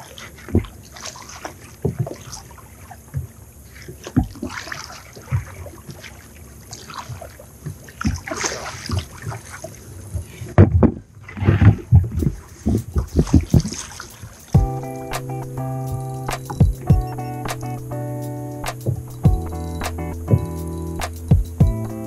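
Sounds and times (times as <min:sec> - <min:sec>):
paddle splashing in water: 0:00.0 - 0:14.6.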